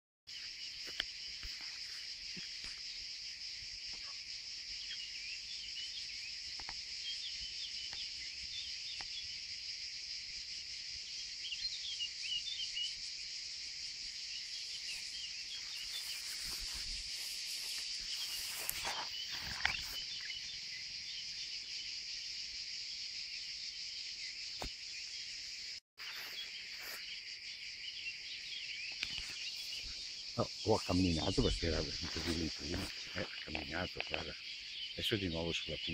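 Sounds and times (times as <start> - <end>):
insect chorus: 0.3 - 35.9
rustling: 15.0 - 20.3.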